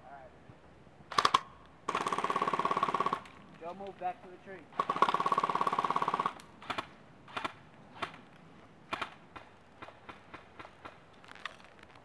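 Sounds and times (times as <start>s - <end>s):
airsoft gun rapid fire: 1.1s - 3.2s, 4.8s - 8.2s.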